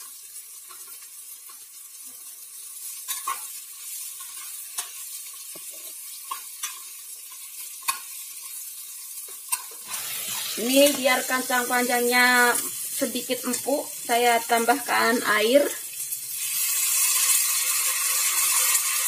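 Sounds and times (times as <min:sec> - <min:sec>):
beans sizzling in oil: 0:00.0 - 0:19.0
metal spatula scraping pot: 0:03.0 - 0:05.0.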